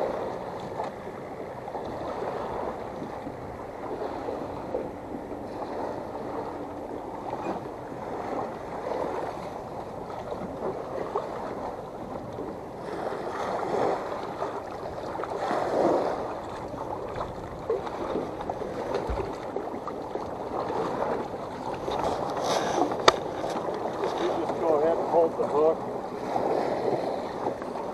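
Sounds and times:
small waves lapping against hull: 0.0s - 27.9s.

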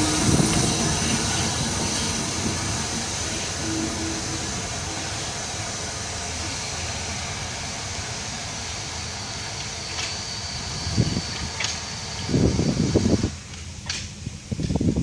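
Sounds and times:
wind gusts on microphone: 0.0s - 5.0s, 10.7s - 13.5s, 14.1s - 15.0s
steam train hiss and rumble: 0.0s - 15.0s.

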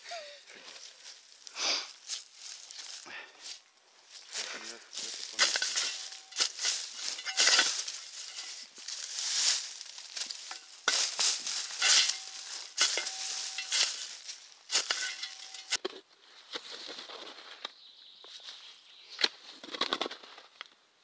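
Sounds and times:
shovel digging gravelly sand: 4.4s - 15.8s.

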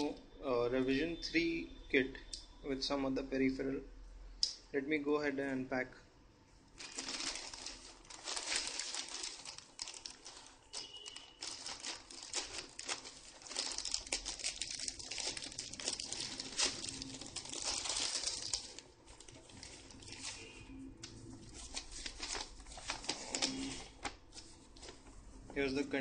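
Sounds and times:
plastic bag tearing: 6.8s - 20.6s, 21.3s - 25.0s
plastic mailer bag crinkling: 6.8s - 20.6s, 21.2s - 25.0s.

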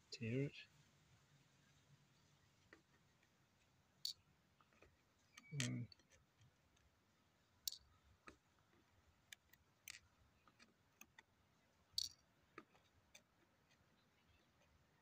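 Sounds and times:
light clicks of tweezers and nuggets: 4.0s - 7.0s, 7.6s - 11.3s, 11.9s - 14.8s.

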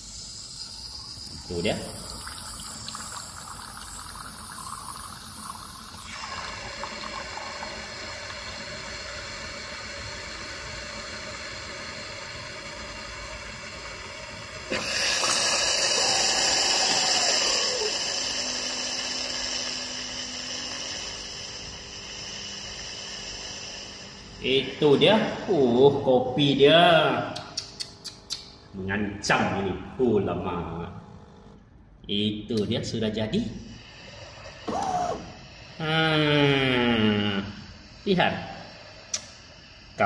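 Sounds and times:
milk frothing hiss: 0.0s - 27.6s, 33.6s - 40.0s
coffee machine pump hum: 0.0s - 31.8s, 32.6s - 40.0s.

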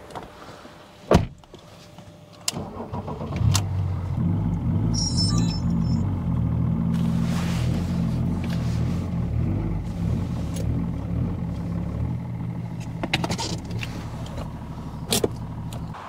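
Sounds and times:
diesel engine idling: 3.7s - 16.0s.

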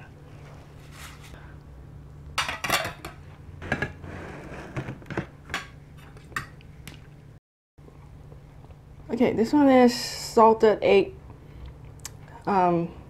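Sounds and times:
plates and cutlery clinking: 2.4s - 3.9s.

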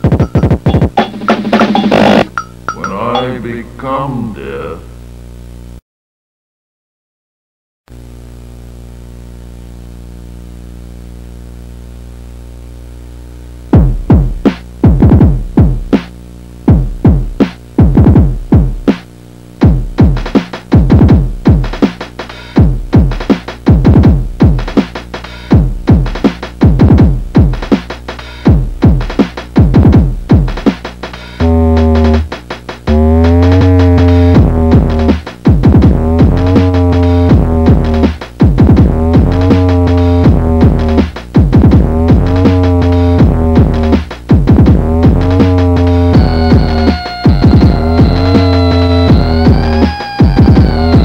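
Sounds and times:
deep drum-machine kicks: 13.7s - 16.1s, 16.7s - 19.0s, 19.6s - 22.0s, 22.6s - 51.0s.

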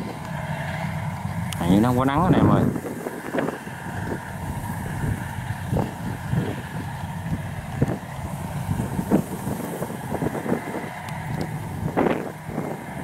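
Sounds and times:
combine harvester engine drone: 0.0s - 13.0s.

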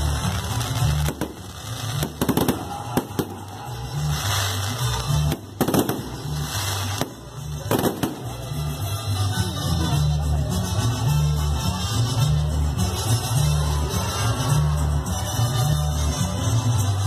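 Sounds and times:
fireworks bangs: 0.0s - 8.6s
background music with bass: 0.0s - 17.0s.

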